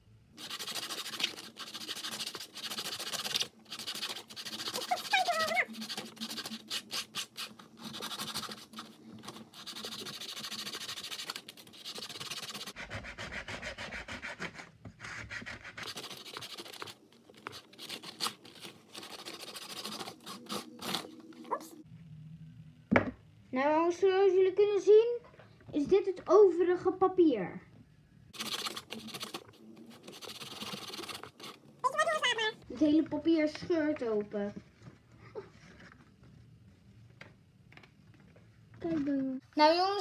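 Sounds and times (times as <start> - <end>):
sandpaper rasping on paper: 0.4 - 21.1, 28.4 - 32.4.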